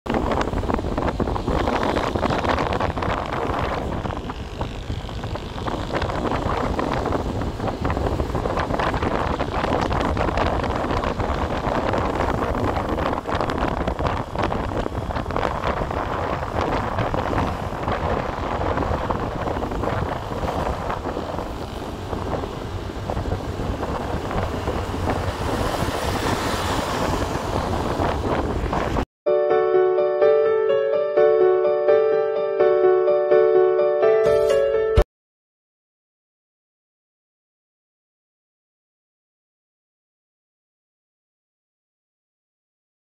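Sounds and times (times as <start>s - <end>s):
motorcycle and road rumble: 0.1s - 29.1s
wind buffeting microphone: 0.1s - 29.1s.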